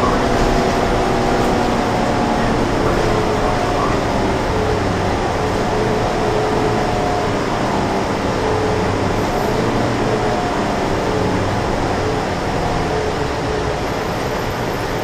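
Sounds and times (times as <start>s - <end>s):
bus engine and road drone: 0.0s - 15.0s.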